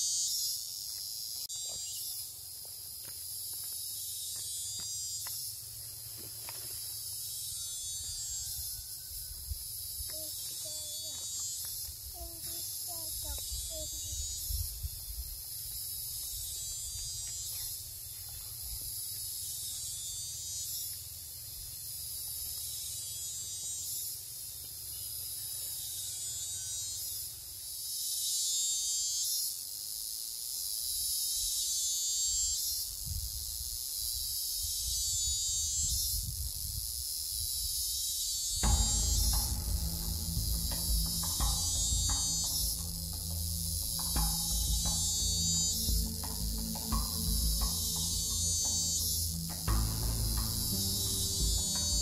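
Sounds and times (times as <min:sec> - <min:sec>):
insects buzzing shrilly: 0:00.0 - 0:52.0
low rumble: 0:38.6 - 0:52.0
music: 0:38.6 - 0:52.0.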